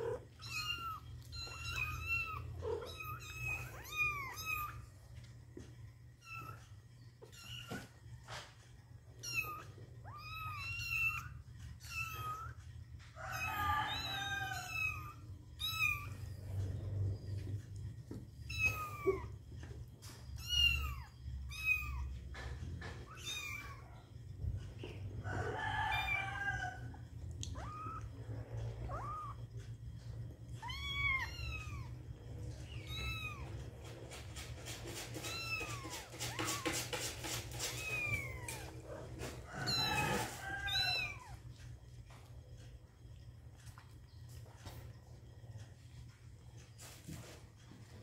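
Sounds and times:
kittens mewing: 0.0s - 4.9s, 24.7s - 34.1s, 34.8s - 41.6s
low steady hum: 0.0s - 36.7s, 37.4s - 48.0s.

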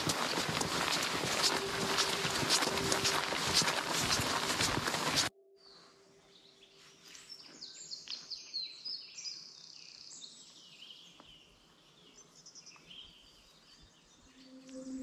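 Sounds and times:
walking footsteps: 0.0s - 5.3s.

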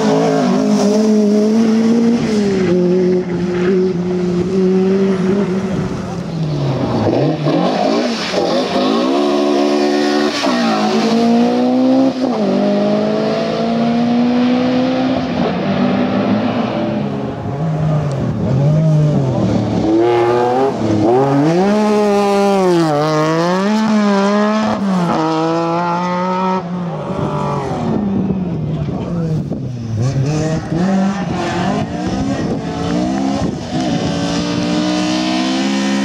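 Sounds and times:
rally car engines revving through gears: 0.0s - 36.0s.

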